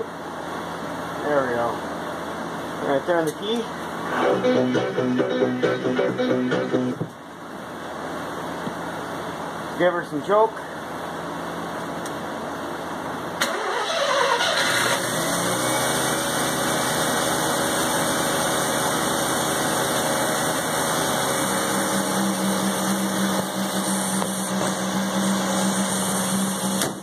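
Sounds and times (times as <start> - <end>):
rotary engine starting and idling: 13.4 - 16.6.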